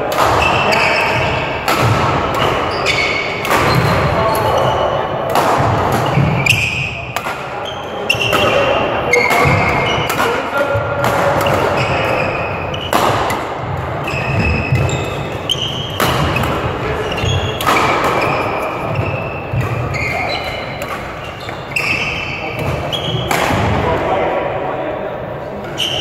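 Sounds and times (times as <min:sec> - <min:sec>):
rackets striking shuttlecock: 0:00.1 - 0:23.7
shoes squeaking on court: 0:02.3 - 0:05.1, 0:05.9 - 0:07.0, 0:11.4 - 0:13.0, 0:13.6 - 0:23.3, 0:25.7 - 0:26.0.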